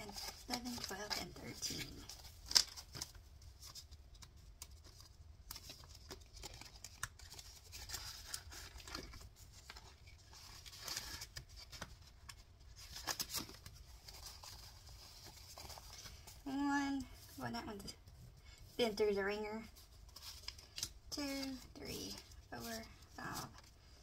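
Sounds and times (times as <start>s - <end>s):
paper bills rustling: 0.0s - 16.4s.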